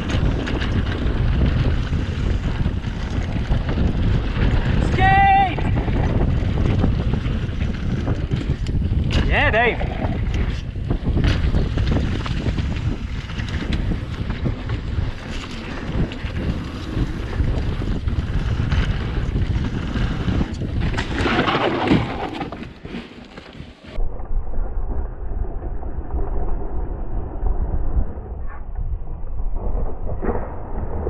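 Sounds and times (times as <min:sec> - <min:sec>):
bike knocks and rattles: 0:00.0 - 0:04.8, 0:10.0 - 0:23.9
wind buffeting microphone: 0:00.0 - 0:23.0.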